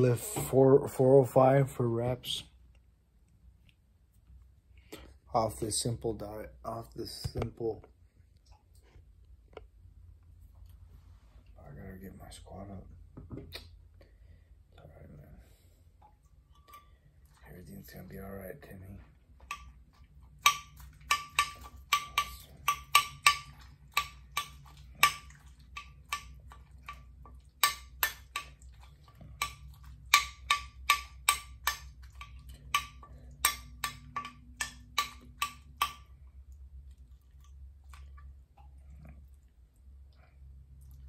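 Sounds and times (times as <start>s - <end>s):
metal spoon clinking against bowl: 20.4s - 27.0s, 29.4s - 36.1s.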